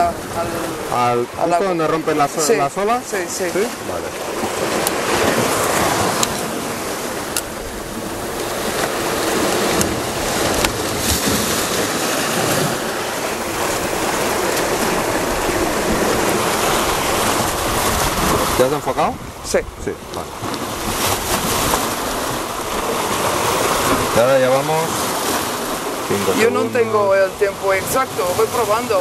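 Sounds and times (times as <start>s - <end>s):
surf breaking over rocks: 0.0s - 29.0s.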